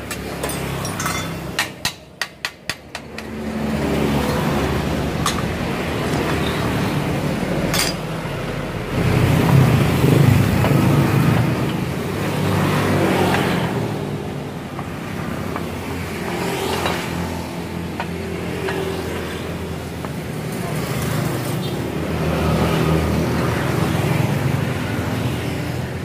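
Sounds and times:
passing motor vehicle engine: 3.0 - 19.6.

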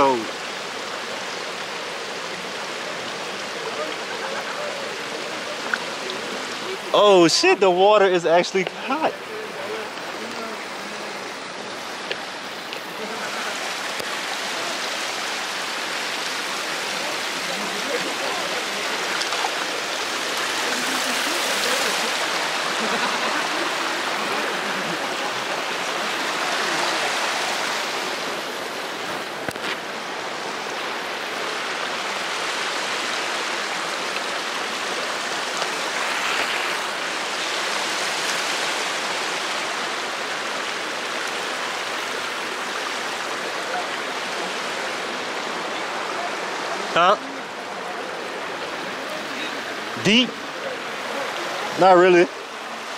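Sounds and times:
water running over rocks: 0.0 - 52.9
feet wading and splashing: 16.8 - 30.0.

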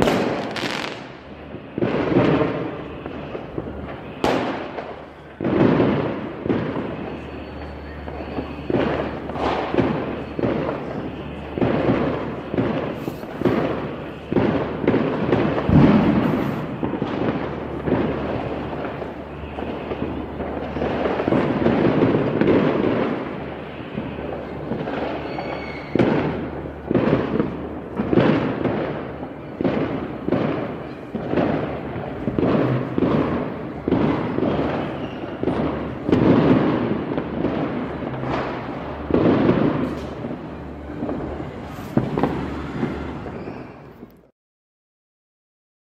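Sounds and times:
distant fireworks booming: 0.0 - 44.3.

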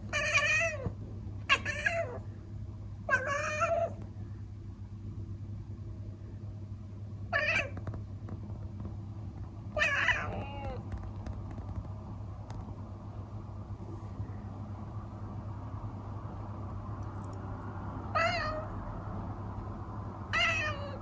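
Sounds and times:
cat chattering: 0.1 - 0.9, 1.5 - 2.2, 3.1 - 4.0, 9.8 - 10.9.

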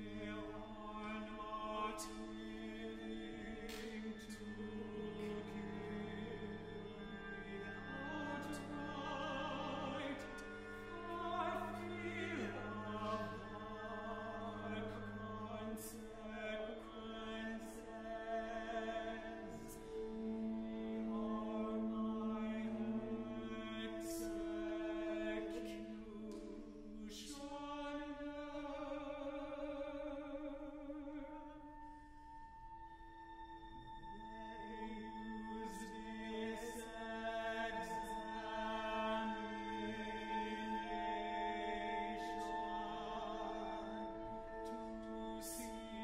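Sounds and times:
ensemble holding chords: 0.0 - 27.1.

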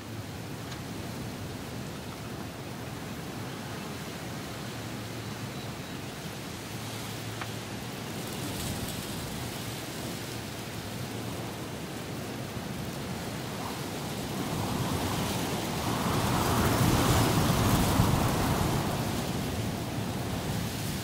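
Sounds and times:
strong wind gusting: 10.9 - 21.0.

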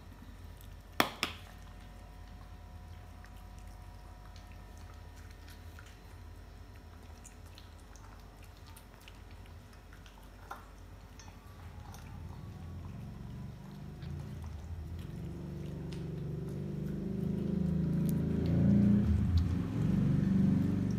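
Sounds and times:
dogs chewing food: 0.0 - 20.9
low steady hum: 0.0 - 20.9.

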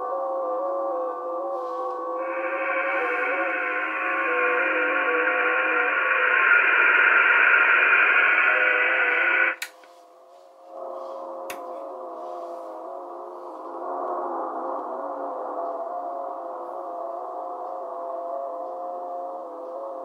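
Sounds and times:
digital data tones hopping in pitch: 2.2 - 9.6.

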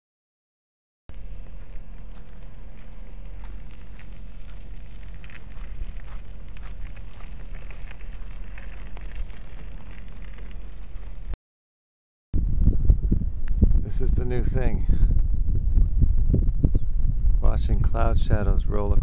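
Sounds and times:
wind rumble on microphone: 1.1 - 11.3, 12.4 - 19.0
gravel crunching: 1.1 - 11.4, 12.9 - 19.0.

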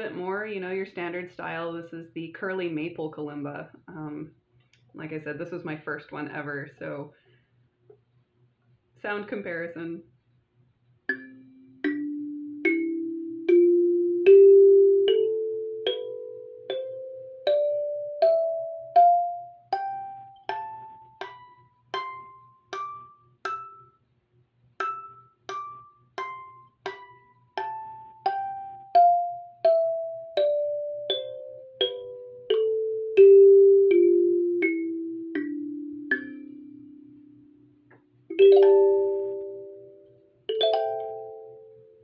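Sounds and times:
kalimba notes ringing: 11.1 - 24.0, 24.8 - 37.5, 38.3 - 42.0.

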